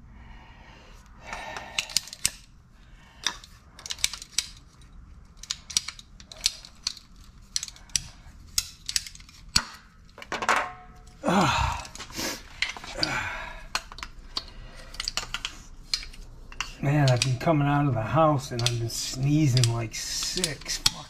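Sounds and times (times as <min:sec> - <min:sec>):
pipe cutter clicking: 0:18.5 - 0:21.0.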